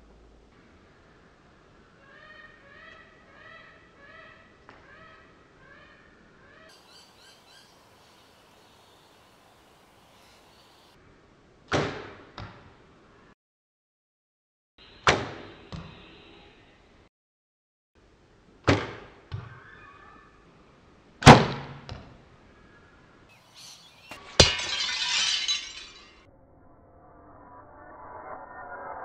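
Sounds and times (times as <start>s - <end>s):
plate cracking and shattering: 24.0s - 26.2s.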